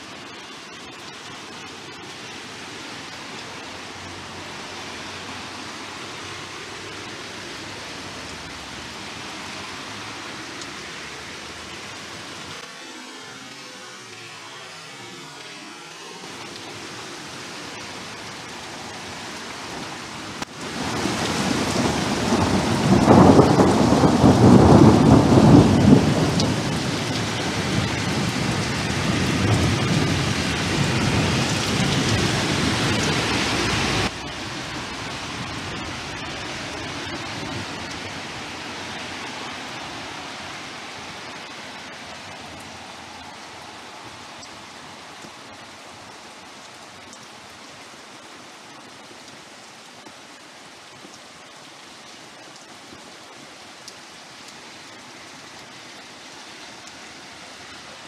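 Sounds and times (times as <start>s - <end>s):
heavy rain hiss: 0.0s - 58.0s
rolling thunder: 20.7s - 34.1s.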